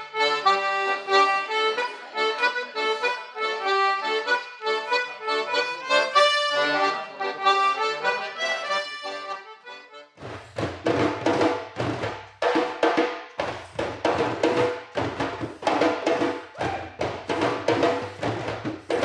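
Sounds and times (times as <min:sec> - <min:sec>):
accordion folk tune: 0:00.0 - 0:16.5, 0:17.1 - 0:19.0
hand drumming: 0:10.2 - 0:19.0.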